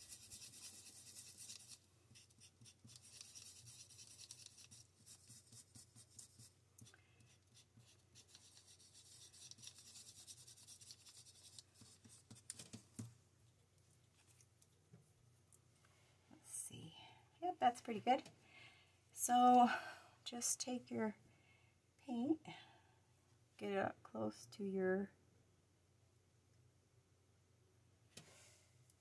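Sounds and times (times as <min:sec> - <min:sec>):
paintbrush scratching on paper: 0:00.0 - 0:12.6.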